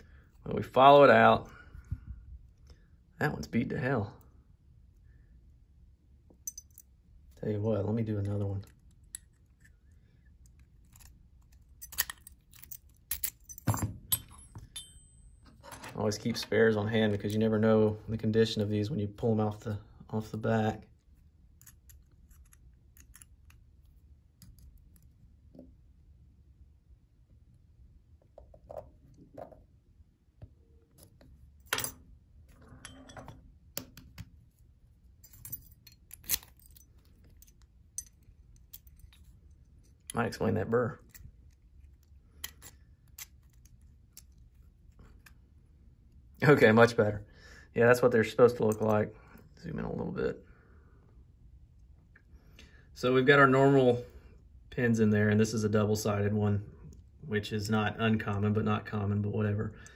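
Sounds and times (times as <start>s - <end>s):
metal lock parts clicking: 8.2s - 16.0s, 21.6s - 23.6s, 35.2s - 40.2s, 41.0s - 45.4s.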